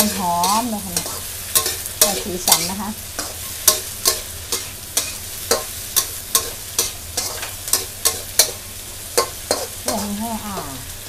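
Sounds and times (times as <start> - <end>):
metal spatula scraping a wok: 0.0 - 10.2
hot oil sizzling: 0.0 - 11.0.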